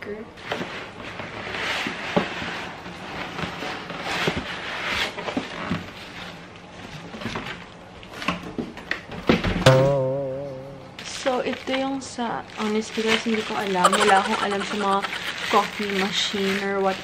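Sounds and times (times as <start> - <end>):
plastic wrapping crinkling: 12.5 - 17.0.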